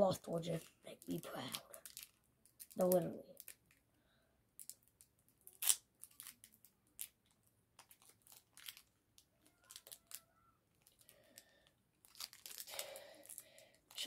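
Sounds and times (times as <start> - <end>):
foil wrapper crinkling: 0.2 - 3.8, 4.6 - 14.0
foil wrapper ripping: 5.4 - 8.9, 10.8 - 14.0.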